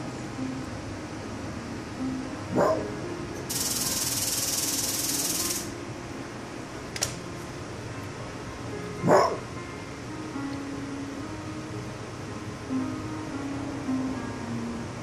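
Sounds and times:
fox alarm bark: 0:02.5 - 0:02.8, 0:09.0 - 0:09.4
steady hiss: 0:03.5 - 0:05.8
sharp click: 0:07.0 - 0:07.2.

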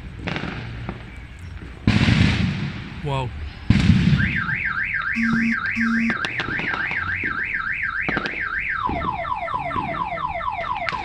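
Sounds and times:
car alarm siren: 0:04.2 - 0:11.0.

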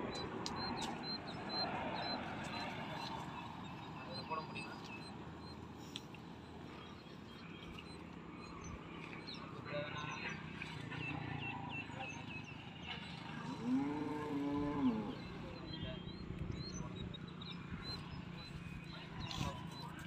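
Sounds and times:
small birds chirping: 0:00.0 - 0:20.0
cow mooing: 0:13.4 - 0:15.6.

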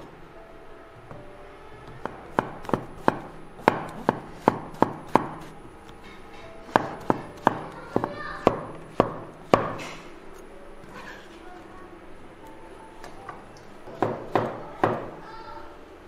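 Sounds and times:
cleaver chopping on wooden board: 0:02.0 - 0:05.5, 0:06.7 - 0:10.0.

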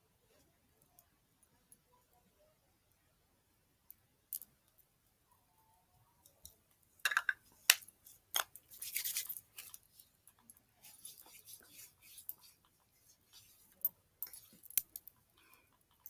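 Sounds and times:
plastic jar clicks and knocks: 0:07.0 - 0:07.8
hands rubbing lotion into skin: 0:08.7 - 0:09.8.

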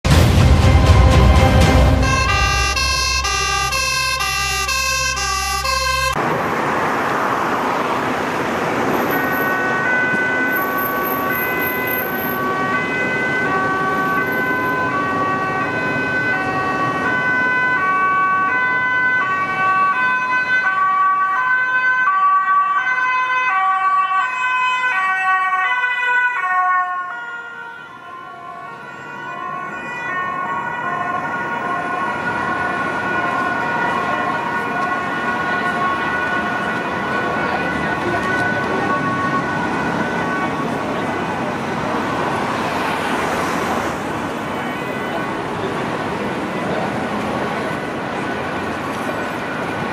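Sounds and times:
road traffic noise: 0:00.0 - 0:49.9
intro music: 0:00.1 - 0:06.2
two-tone ambulance siren: 0:01.7 - 0:06.4, 0:07.9 - 0:49.9.

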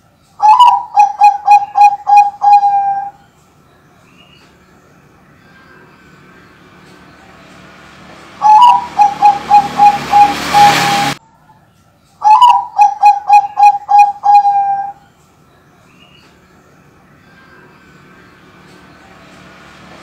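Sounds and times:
dove cooing: 0:00.4 - 0:03.2, 0:08.4 - 0:11.2, 0:12.2 - 0:15.1.

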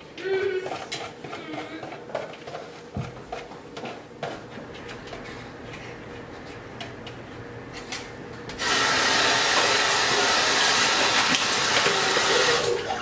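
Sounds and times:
tap water running into sink: 0:08.6 - 0:13.0.

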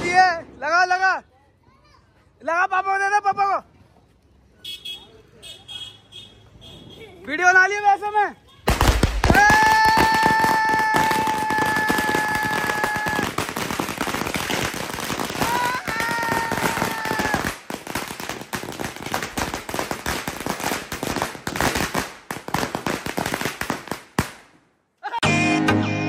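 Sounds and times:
firecrackers cracking: 0:08.6 - 0:24.6.

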